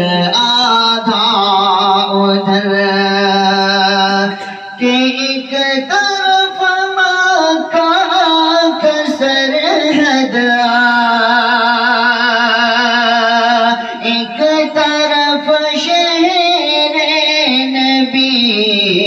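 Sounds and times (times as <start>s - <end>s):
man singing unaccompanied: 0.0s - 19.0s.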